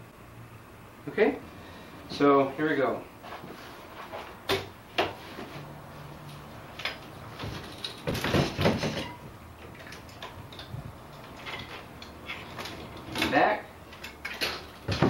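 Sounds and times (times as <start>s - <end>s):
bicycle frame and chain rattling: 6.8s - 15.0s.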